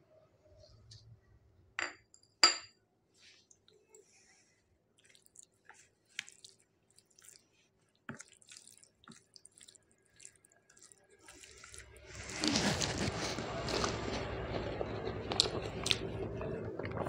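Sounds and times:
fingers mashing rice wet squelches: 0:05.0 - 0:17.0.

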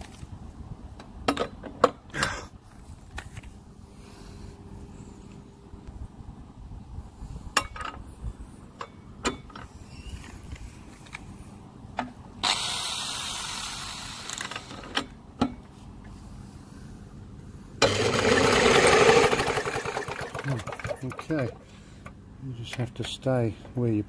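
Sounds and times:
electric drill spinning: 0:12.4 - 0:14.8, 0:17.8 - 0:21.1
engine cranking over: 0:17.8 - 0:21.6.

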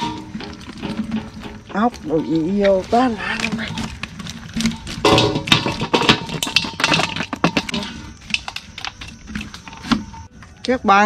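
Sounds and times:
snails and fish clattering into basin: 0:00.0 - 0:11.0.

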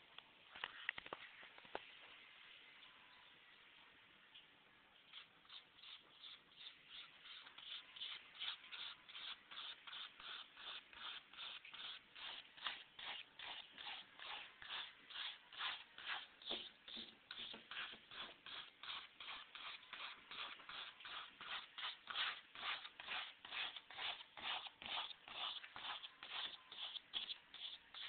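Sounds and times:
paintbrush scrubbing on canvas: 0:05.0 - 0:28.0.

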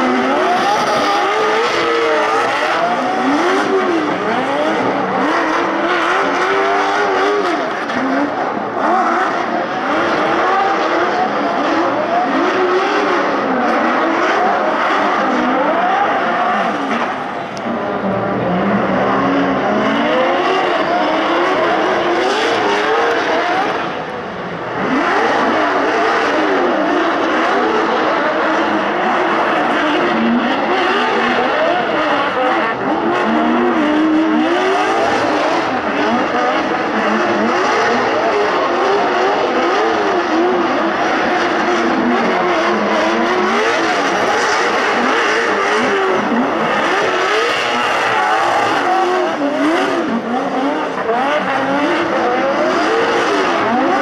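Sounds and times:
car engines revving: 0:00.0 - 0:54.0.

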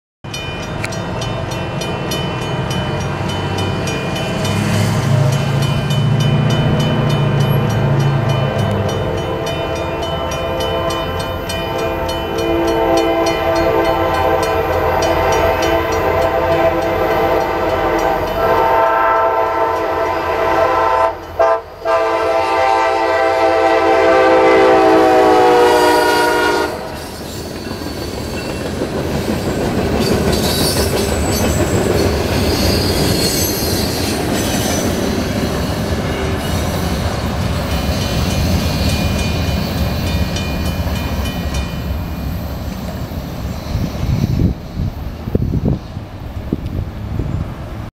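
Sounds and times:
freight cars rumbling: 0:00.2 - 0:18.3, 0:26.7 - 0:47.9
crossing bell ringing: 0:00.2 - 0:22.4, 0:24.2 - 0:45.3
locomotive air horn: 0:09.2 - 0:27.0
high wheel squeal: 0:26.9 - 0:46.0.

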